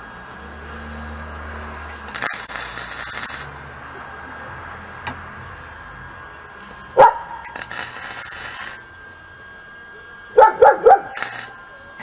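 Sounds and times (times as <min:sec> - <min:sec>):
welder humming: 0:00.0 - 0:04.5, 0:05.1 - 0:12.0
welding torch hissing crackle: 0:01.9 - 0:03.5, 0:07.0 - 0:08.9, 0:11.1 - 0:11.6.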